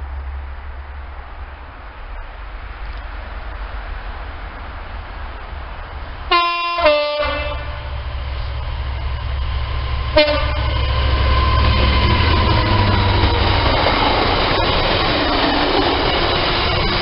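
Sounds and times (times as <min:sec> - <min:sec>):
diesel engine drone: 0:00.0 - 0:17.0
locomotive horn: 0:06.3 - 0:08.5, 0:10.1 - 0:12.2.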